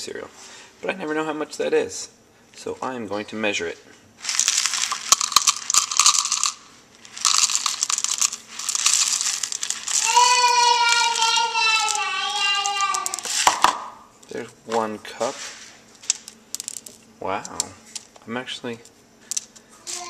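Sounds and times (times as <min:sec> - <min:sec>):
cereal pouring into plastic cup: 0:04.2 - 0:13.6
high voice holding a note: 0:10.0 - 0:13.3.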